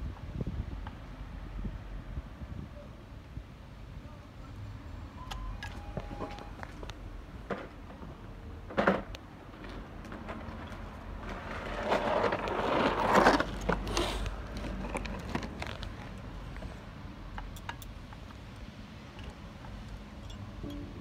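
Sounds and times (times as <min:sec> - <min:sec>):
handling and rustling: 0:09.6 - 0:20.9.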